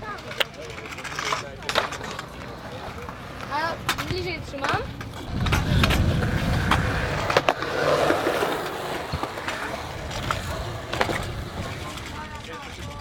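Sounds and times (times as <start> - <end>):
small hard wheels rolling on concrete: 0.0 - 13.0
wheels or decks clacking on concrete: 0.0 - 13.0.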